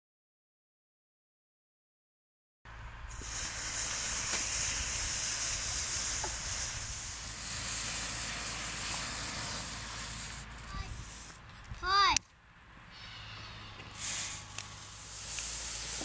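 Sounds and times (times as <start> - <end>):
gunpowder fizzing hiss: 3.1 - 11.5, 13.9 - 16.0.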